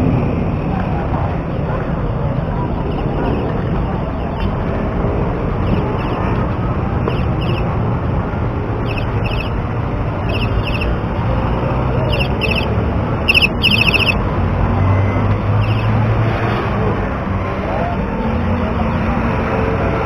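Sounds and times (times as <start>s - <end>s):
street and crowd noise: 0.0s - 20.0s
high trilling chirps: 7.1s - 7.7s, 8.8s - 9.6s, 10.2s - 11.1s, 12.0s - 14.2s, 15.6s - 16.0s.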